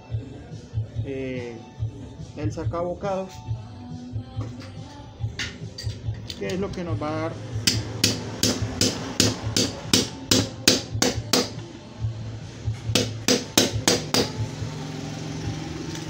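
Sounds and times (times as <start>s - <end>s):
hammer striking metal punch: 7.6s - 11.6s, 12.9s - 14.4s.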